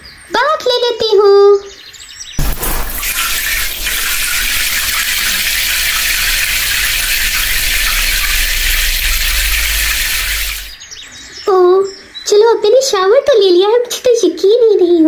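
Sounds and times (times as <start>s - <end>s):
shower water spraying: 2.4s - 10.8s
low hum: 2.4s - 10.9s.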